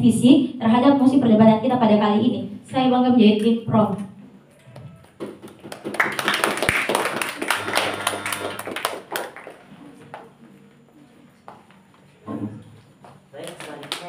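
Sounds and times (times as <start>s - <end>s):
people clapping: 4.7s - 10.3s, 13.4s - 14.0s.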